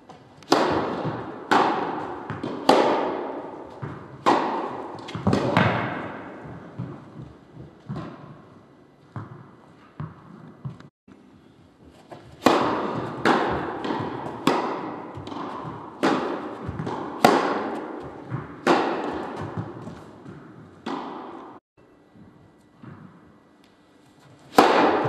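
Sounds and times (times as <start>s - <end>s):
tennis balls struck: 0.4s - 8.4s, 12.4s - 21.6s, 24.4s - 25.0s.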